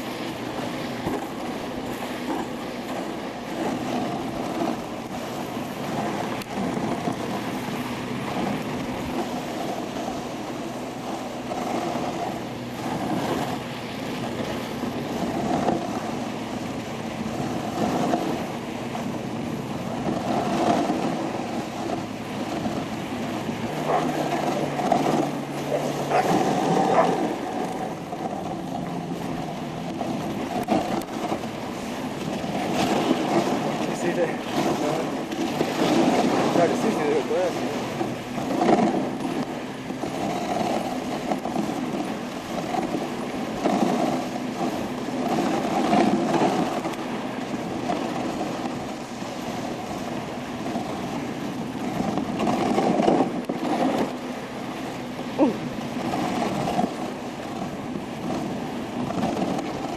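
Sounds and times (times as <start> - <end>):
sled runners scraping on snow: 0.0 - 59.9.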